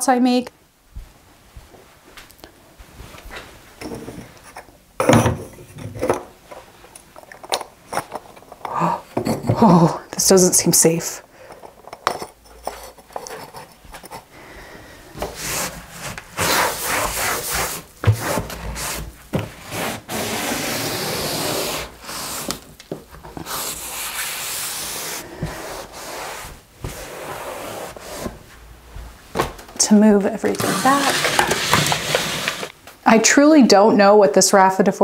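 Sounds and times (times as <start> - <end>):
cloth scrubbing a windowsill: 15.3 - 22.6, 23.4 - 28.4, 30.4 - 32.7.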